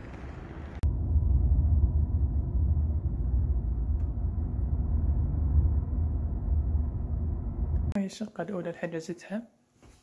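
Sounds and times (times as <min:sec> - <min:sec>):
car engine and road noise: 0:00.0 - 0:08.0.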